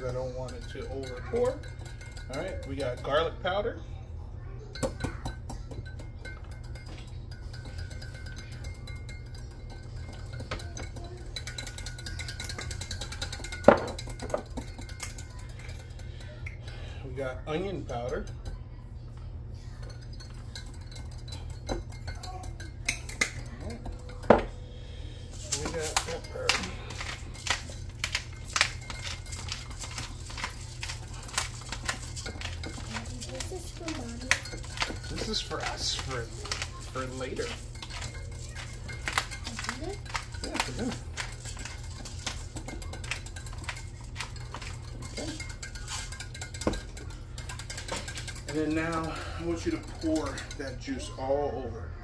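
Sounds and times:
whisk ticking against glass cup: 0.0s - 3.6s, 4.7s - 16.6s, 19.7s - 24.6s, 25.4s - 51.2s
spice jar shaking: 25.4s - 50.6s.

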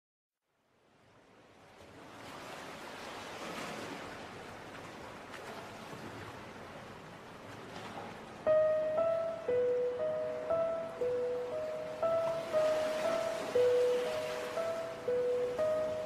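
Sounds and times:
water-like rushing noise: 1.0s - 16.0s.

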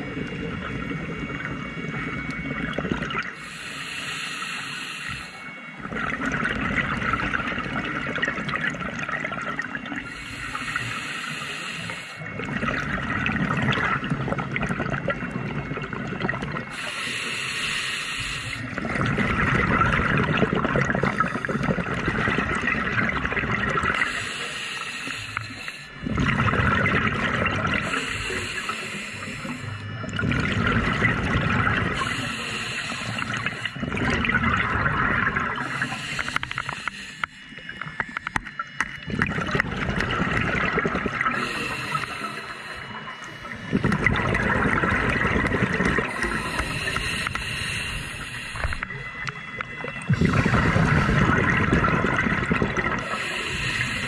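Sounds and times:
exhaust bubbles underwater: 0.0s - 3.5s, 5.4s - 17.4s, 18.2s - 24.4s, 25.0s - 54.0s
regulator inhale hiss: 3.3s - 5.6s, 9.9s - 12.3s, 16.7s - 18.8s, 24.0s - 26.0s, 27.8s - 30.0s, 31.9s - 33.8s, 35.6s - 38.6s, 41.2s - 43.8s, 46.0s - 51.2s, 52.9s - 54.0s.

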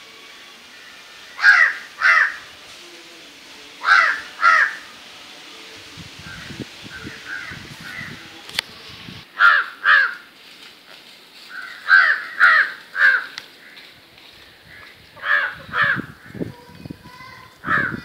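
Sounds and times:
crow cawing: 0.7s - 2.5s, 3.8s - 4.9s, 7.3s - 8.2s, 9.4s - 10.3s, 11.5s - 13.9s, 14.7s - 16.4s, 17.6s - 18.0s.

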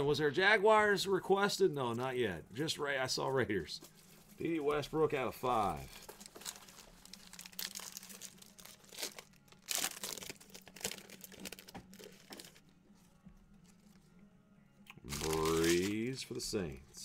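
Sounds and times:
foil wrapper crinkling and tearing: 5.8s - 12.7s, 15.0s - 16.2s.

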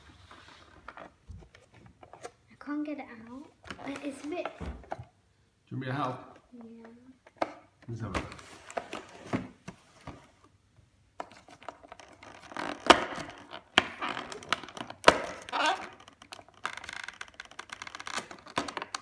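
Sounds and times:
cardboard and foil crackling: 11.4s - 19.0s.

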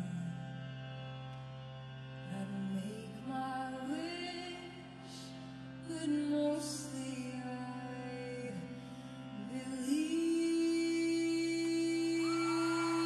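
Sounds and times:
slow singing voice: 9.5s - 13.0s.

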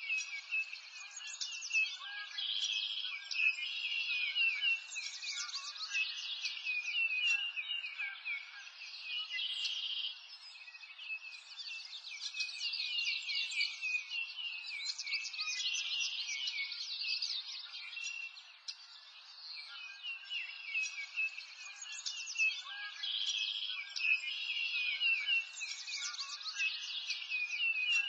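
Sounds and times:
birds chirping and singing: 0.0s - 28.0s.

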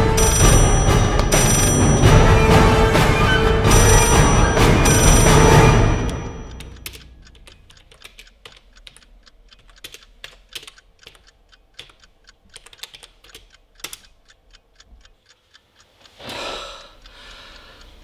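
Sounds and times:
computer keyboard key clicks: 6.6s - 14.2s.

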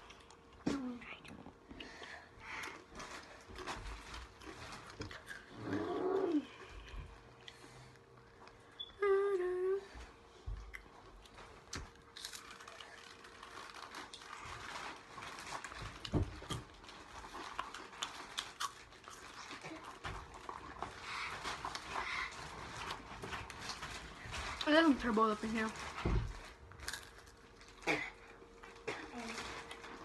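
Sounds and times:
boy humming: 5.6s - 6.6s, 9.0s - 10.0s
chips crunching: 11.6s - 25.8s, 26.5s - 28.0s.

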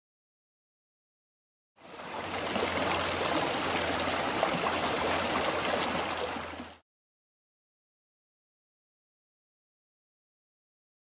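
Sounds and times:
stream rushing over rocks: 1.8s - 6.8s.

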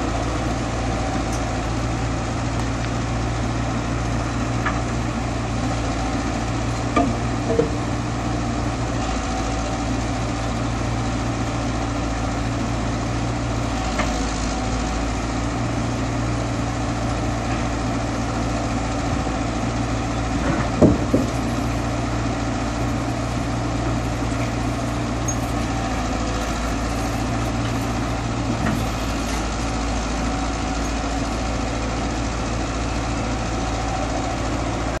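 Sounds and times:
excavator diesel engine running: 0.0s - 35.0s
bucket knocking against concrete: 20.8s - 21.5s.

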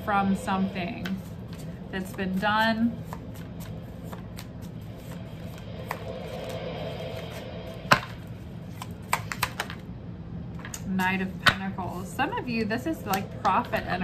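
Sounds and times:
cards tapping and clicking: 8.7s - 9.8s.

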